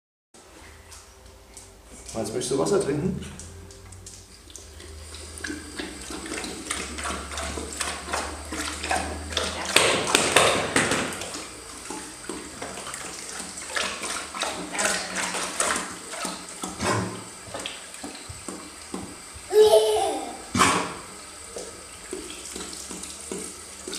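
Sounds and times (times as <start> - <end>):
dog lapping water: 2.8 - 19.4, 20.3 - 23.9
water running into ceramic bowl: 4.4 - 23.9.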